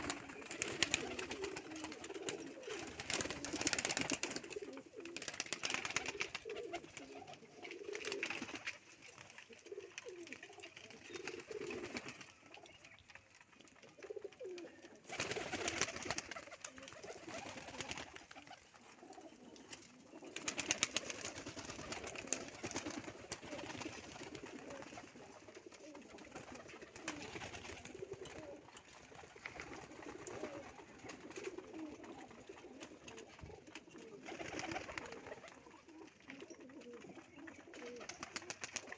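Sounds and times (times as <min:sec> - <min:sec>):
pigeons cooing: 0:00.0 - 0:38.9.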